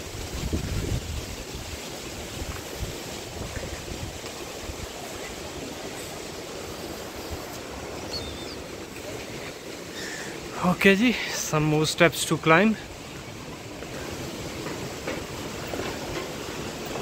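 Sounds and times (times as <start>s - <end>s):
wind rumbling on microphone: 0.0s - 9.8s
mountain stream rushing: 0.0s - 17.0s.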